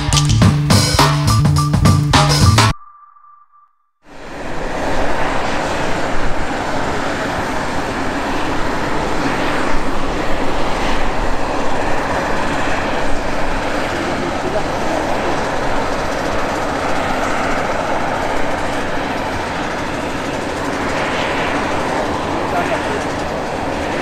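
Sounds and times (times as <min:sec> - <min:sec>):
propeller aircraft engine rush: 0:04.1 - 0:24.0.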